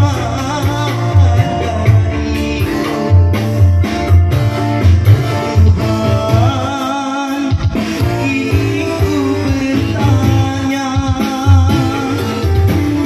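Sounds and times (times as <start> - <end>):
steady bass beat: 0.0 - 6.8.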